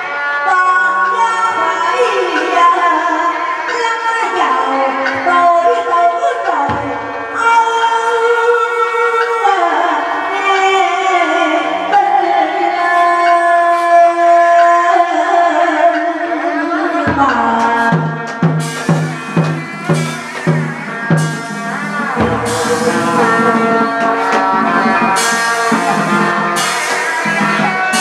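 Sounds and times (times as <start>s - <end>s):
drum beats: 6.5s - 7.6s, 17.1s - 28.0s
cymbal crashes: 20.0s - 27.0s
person singing opera: 22.2s - 25.4s.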